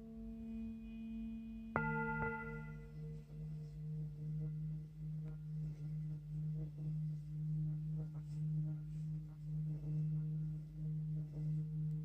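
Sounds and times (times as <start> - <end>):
singing bowl deep tone: 0.0 - 12.0
mallet tap on singing bowl: 1.8 - 2.9.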